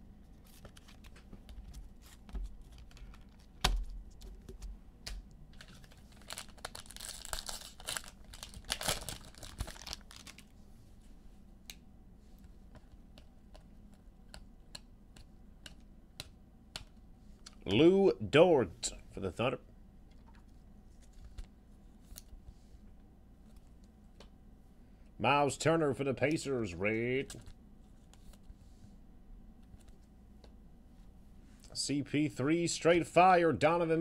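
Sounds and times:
plastic wrapper crinkling: 5.5 - 10.5
cards clicking and tapping: 12.7 - 17.6.

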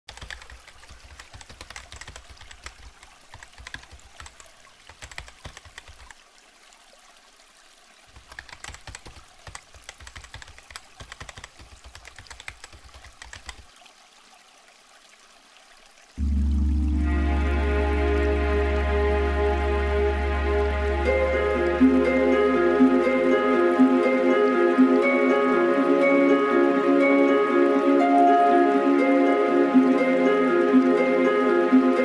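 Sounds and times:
keyboard typing clicks: 0.1 - 6.2, 8.2 - 13.7.

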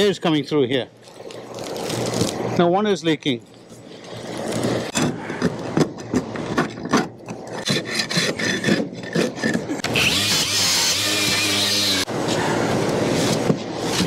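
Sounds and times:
angle grinder wire brush on metal: 7.6 - 12.1
scraper rasping on sheet metal: 7.6 - 12.1.

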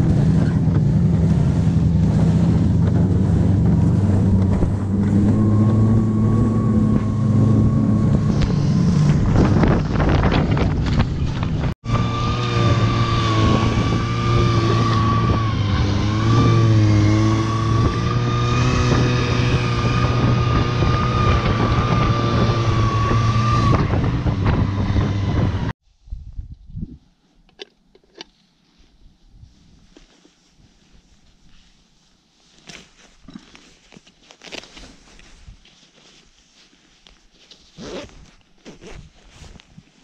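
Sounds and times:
snowmobile engine droning: 0.0 - 25.7.

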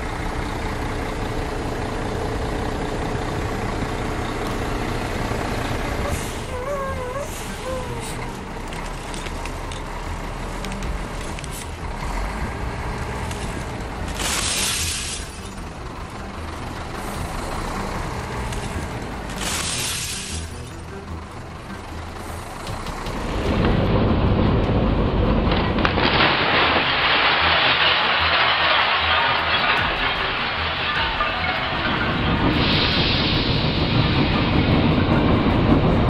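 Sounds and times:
truck engine rumbling: 0.0 - 36.0
glass crunching and cracking: 8.7 - 9.9, 13.2 - 15.6, 18.5 - 20.6, 25.8 - 32.2.

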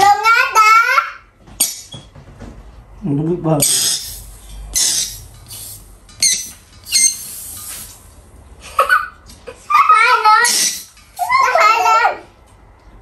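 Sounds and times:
balloon squeak: 3.6 - 8.0, 10.4 - 11.3
helium hissing from nozzle: 3.7 - 8.1, 10.5 - 11.3.

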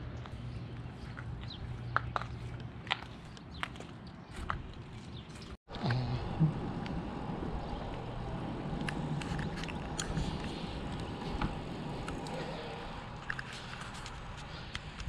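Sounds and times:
tyres on pavement: 0.0 - 15.0.

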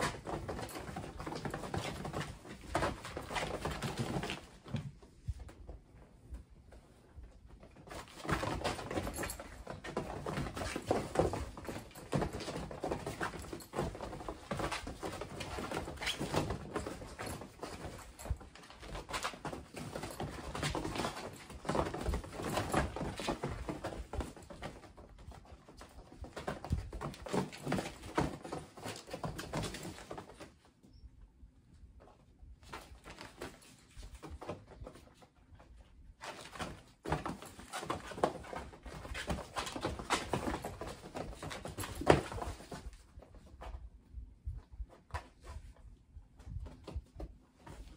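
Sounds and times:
kittens' paws pattering on fabric: 0.0 - 47.9
scuffling thumps: 32.6 - 47.9.

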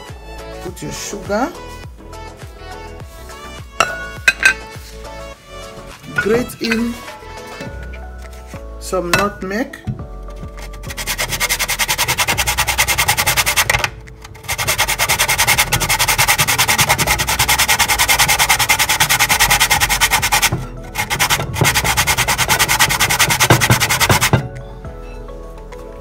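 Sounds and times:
nutmeg rasping on metal grater: 10.6 - 24.4.

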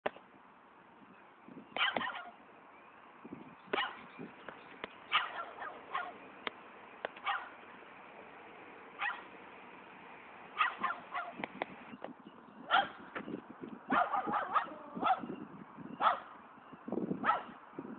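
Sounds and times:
dog barking: 1.8 - 2.4, 3.8 - 4.0, 5.1 - 6.2, 7.2 - 7.5, 9.0 - 9.3, 10.6 - 11.4, 12.7 - 13.0, 13.9 - 15.3, 16.0 - 16.3, 17.2 - 17.6.

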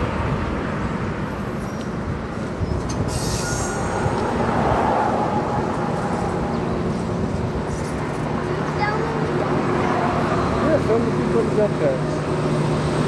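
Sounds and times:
train wheels rumbling on rails: 0.0 - 13.0
high-pitched squeal: 3.1 - 7.8.

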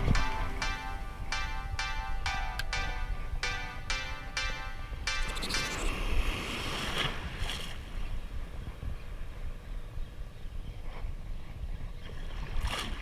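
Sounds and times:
wind rumbling on microphone: 5.0 - 13.0.

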